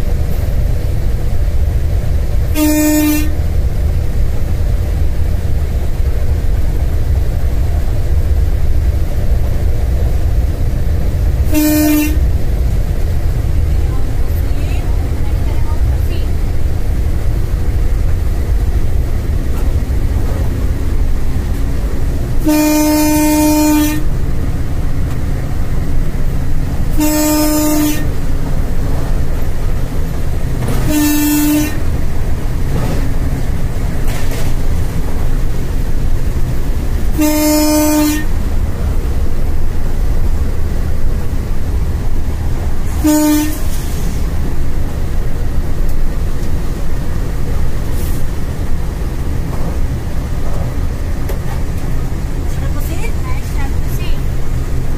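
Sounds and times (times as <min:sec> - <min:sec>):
low cab running rumble: 0:00.0 - 0:54.9
locomotive horn blasts: 0:02.5 - 0:03.4, 0:11.4 - 0:12.4, 0:22.4 - 0:24.2, 0:26.9 - 0:28.3, 0:30.6 - 0:32.0, 0:37.1 - 0:38.4, 0:42.9 - 0:43.8.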